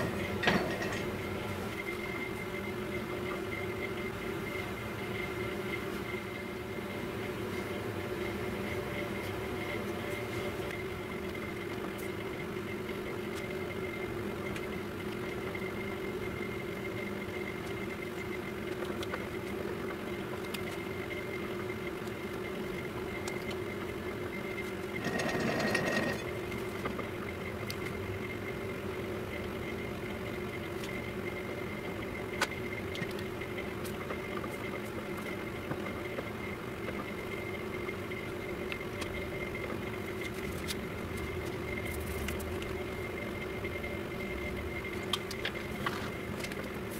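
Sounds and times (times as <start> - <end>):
metal lathe humming and whining: 0.0 - 3.3, 24.5 - 27.0.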